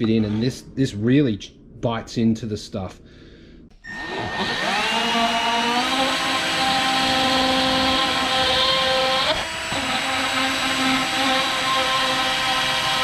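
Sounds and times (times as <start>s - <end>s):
drill burr grinding plastic: 3.9s - 13.0s.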